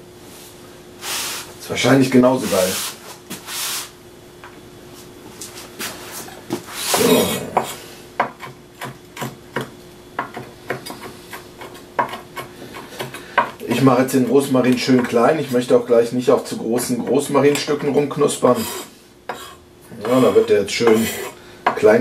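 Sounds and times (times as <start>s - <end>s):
knife chopping on wooden board: 6.9s - 13.9s.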